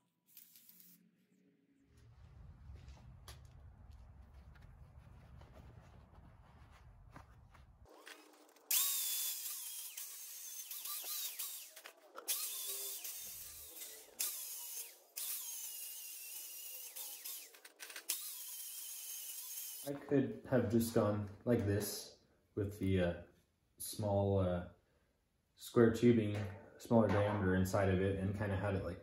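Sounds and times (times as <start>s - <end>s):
low rumble: 1.8s - 7.9s
angle grinder grinding metal: 7.9s - 20.0s.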